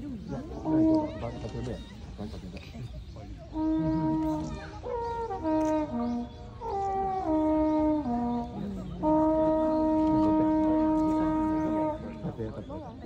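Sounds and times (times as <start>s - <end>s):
horn playing falling notes: 3.5s - 12.2s.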